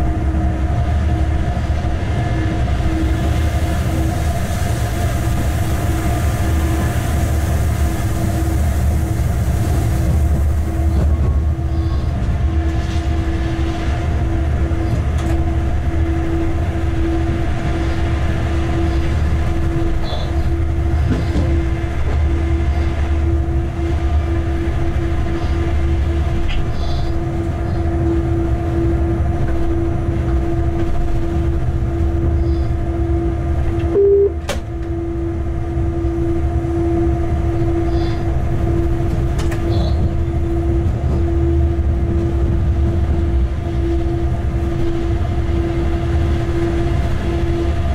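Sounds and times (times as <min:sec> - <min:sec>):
locomotive rumble: 0:00.0 - 0:47.9
short beep: 0:33.9 - 0:34.4.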